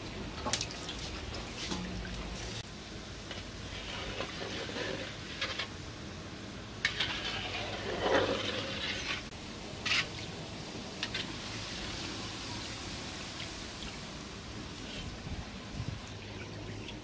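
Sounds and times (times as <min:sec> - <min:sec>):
balls sizzling in hot oil: 0:01.2 - 0:17.0
spoon scraping metal pan: 0:03.3 - 0:05.8, 0:06.8 - 0:10.1.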